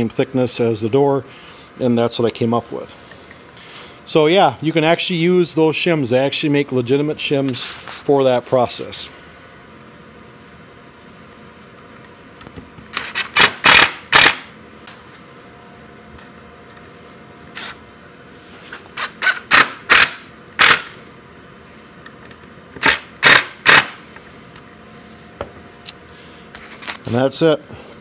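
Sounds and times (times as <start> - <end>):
cordless driver running screws: 12.9 - 14.4, 19.0 - 21.0, 22.8 - 24.0.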